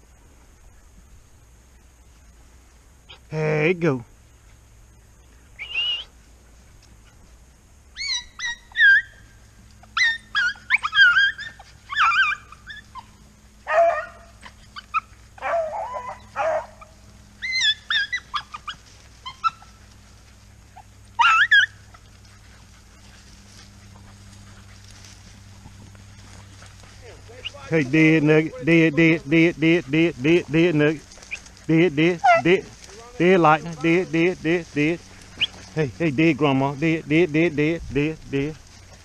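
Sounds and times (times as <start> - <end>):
dogs yipping and whining: 7.9 - 26.8, 32.2 - 32.7, 35.0 - 35.8.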